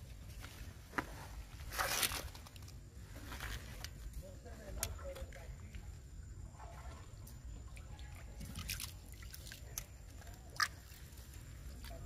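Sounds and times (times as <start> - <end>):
water splashing and dripping: 4.7 - 12.0.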